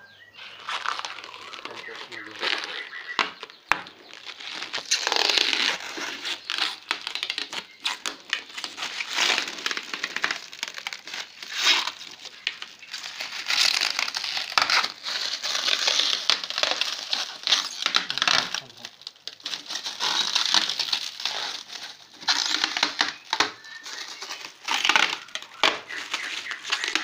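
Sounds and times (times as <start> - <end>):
plastic wrap crinkling: 0.4 - 27.0.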